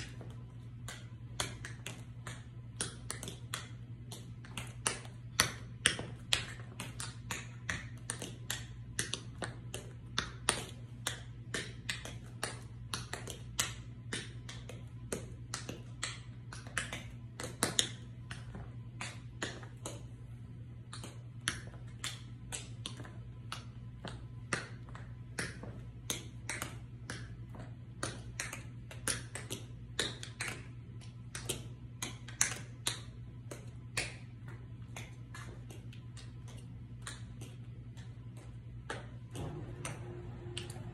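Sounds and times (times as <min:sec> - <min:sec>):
tap shoes clicking on floor: 0:00.0 - 0:20.2, 0:20.9 - 0:40.9.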